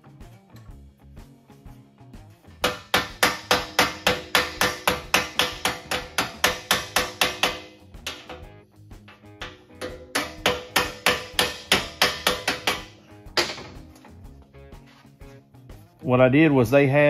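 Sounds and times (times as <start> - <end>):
quiet background music: 0.0 - 17.0
hammer striking sheet metal: 2.6 - 13.9.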